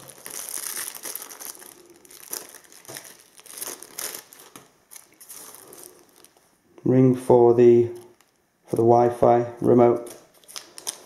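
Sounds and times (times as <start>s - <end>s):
plastic bag crinkling: 0.0s - 6.5s, 10.0s - 11.0s.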